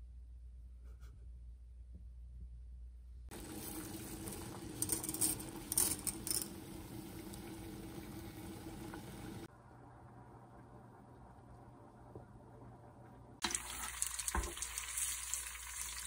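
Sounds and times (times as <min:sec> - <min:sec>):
water boiling and bubbling: 0:03.3 - 0:16.0.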